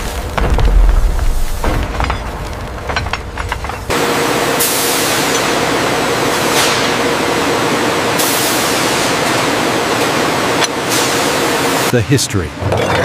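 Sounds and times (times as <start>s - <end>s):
factory machinery hiss: 3.9s - 11.9s.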